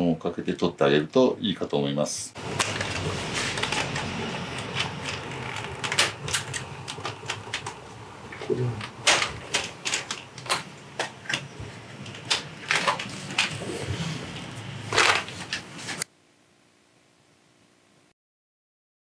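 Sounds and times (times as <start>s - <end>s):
plastic parts clicking and clattering: 2.5s - 13.6s, 14.9s - 16.0s.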